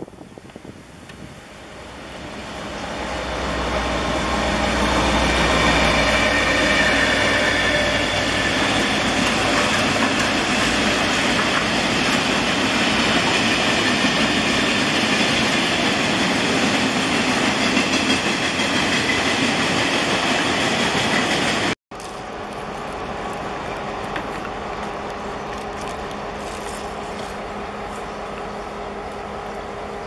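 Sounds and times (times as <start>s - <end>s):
diesel locomotive engine rumble: 0.0s - 30.0s
train wheels clattering on rail: 3.6s - 22.2s.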